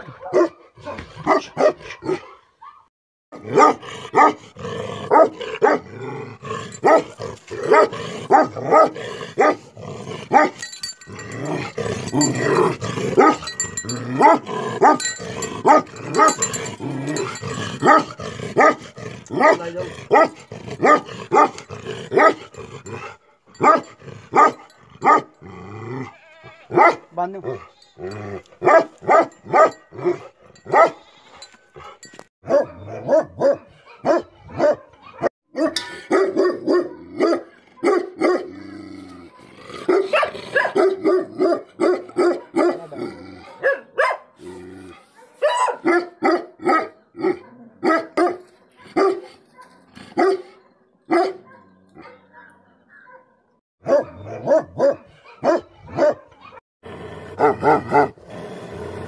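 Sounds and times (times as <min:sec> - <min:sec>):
dogs barking aggressively: 0:00.0 - 0:02.5, 0:03.3 - 0:26.1, 0:26.7 - 0:59.0.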